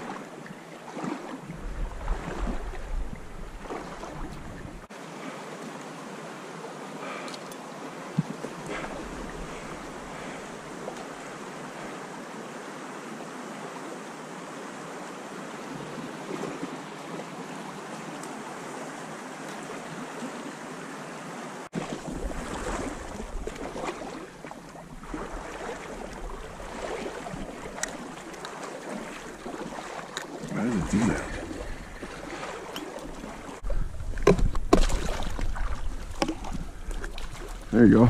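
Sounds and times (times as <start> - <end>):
river water rushing around rocks: 3.6 - 33.7.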